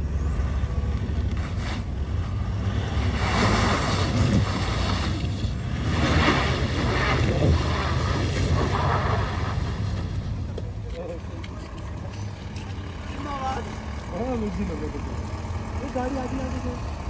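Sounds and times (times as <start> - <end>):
vehicle engine idling: 0.0 - 3.2, 6.7 - 17.0
wind buffeting microphone: 3.4 - 9.9.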